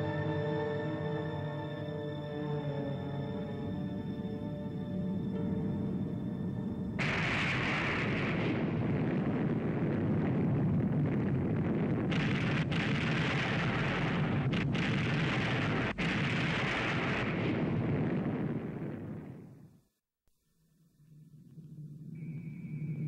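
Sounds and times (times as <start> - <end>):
rumbling roar of eruption: 7.0 - 19.4.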